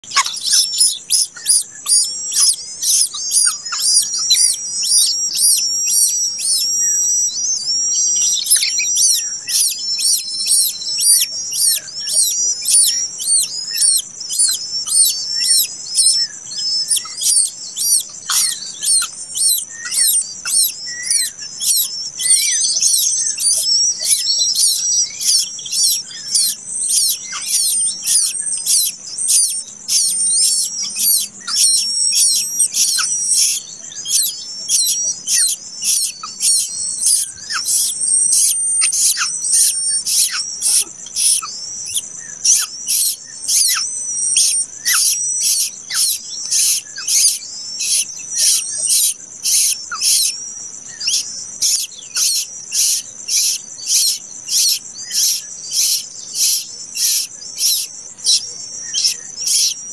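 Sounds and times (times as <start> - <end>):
nestling birds chirping: 0.0 - 59.9.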